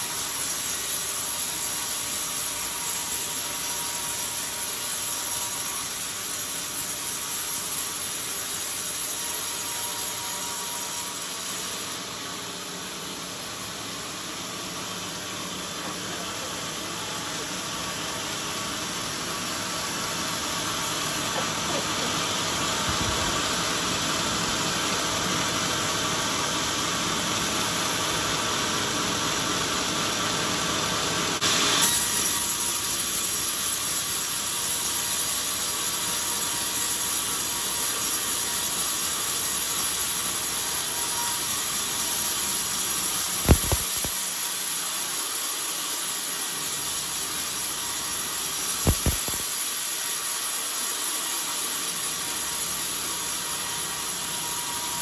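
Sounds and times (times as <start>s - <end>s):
faint steady whine: 43.1s - 44.2s, 48.8s - 49.6s.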